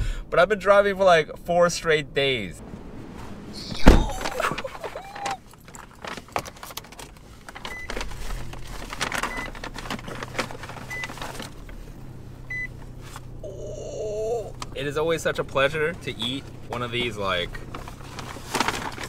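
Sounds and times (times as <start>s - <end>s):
paper bag rustling: 3.3s - 11.9s, 16.2s - 19.0s
sharp thud: 3.7s - 4.4s.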